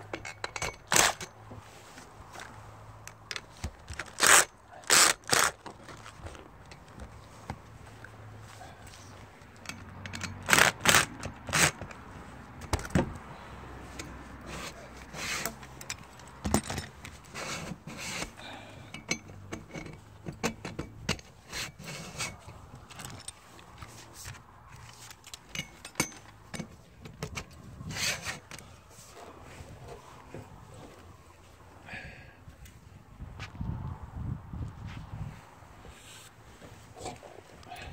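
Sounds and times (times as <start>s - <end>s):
metal parts clanking and scraping: 0.0s - 1.4s, 9.6s - 12.0s, 13.9s - 28.8s.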